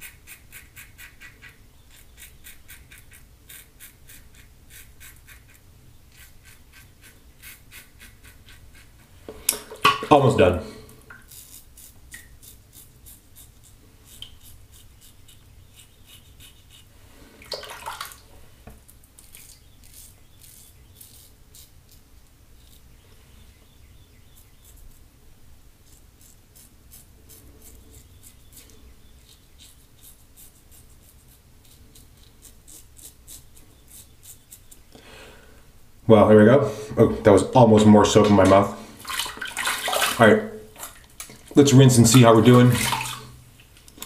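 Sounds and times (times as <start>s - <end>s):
shaving brush dabbing lather: 0.0s - 9.0s, 11.2s - 16.9s, 19.2s - 22.9s, 25.8s - 34.8s
razor scraping stubble: 0.0s - 16.9s, 19.1s - 23.0s, 24.2s - 25.1s, 25.8s - 34.9s.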